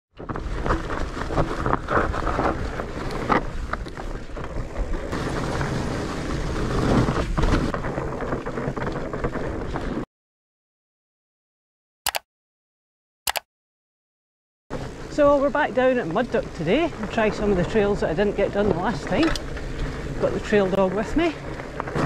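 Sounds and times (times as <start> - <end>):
bike knocks and rattles: 0.2 - 10.0
bike tyres crunching on dirt: 0.2 - 10.0, 14.7 - 22.0
wind rumbling on microphone: 14.8 - 22.0.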